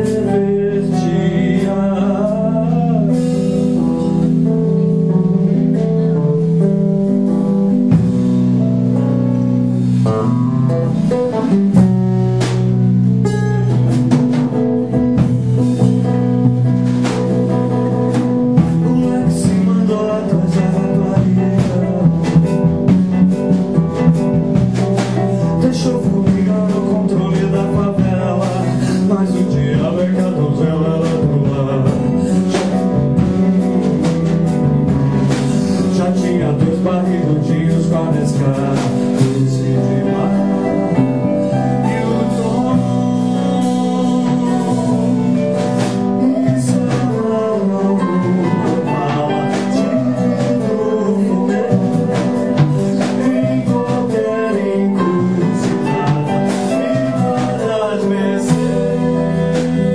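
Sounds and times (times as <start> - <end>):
person singing: 0.0 - 9.0, 13.2 - 59.9
guitar: 0.0 - 59.9.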